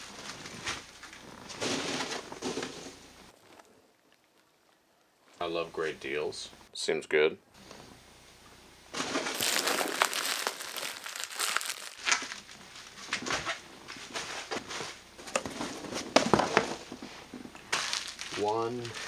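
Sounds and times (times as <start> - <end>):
bubble wrap crinkling: 9.0 - 19.0.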